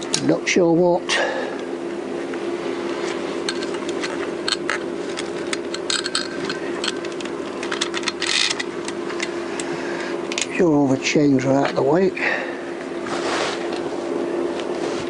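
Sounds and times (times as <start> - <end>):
steady hum: 0.0 - 15.0
metallic clinks and rattles: 3.5 - 8.7.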